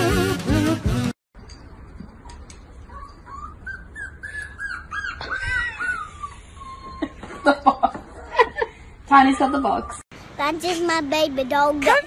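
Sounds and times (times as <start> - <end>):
puppy whimpering: 2.2 - 7.5.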